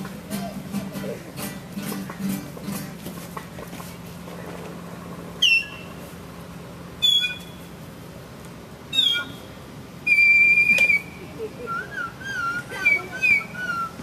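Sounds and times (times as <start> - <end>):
high-pitched whistled squeals: 5.4 - 5.9, 7.0 - 7.6, 8.9 - 14.0.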